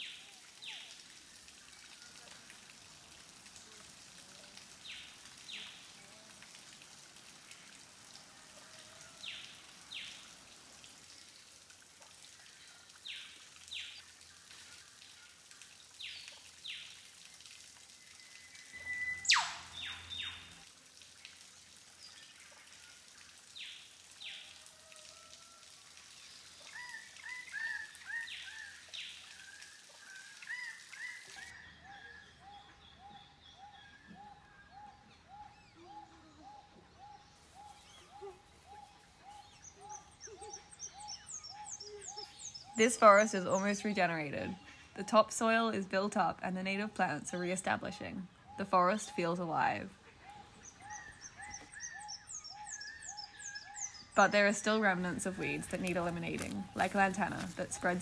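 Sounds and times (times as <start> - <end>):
dripping ticks: 0.0 - 18.7
birds calling faintly: 0.0 - 58.0.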